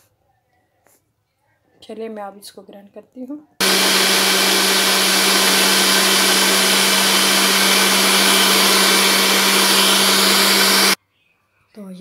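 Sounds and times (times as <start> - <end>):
blender motor running: 3.6 - 11.0.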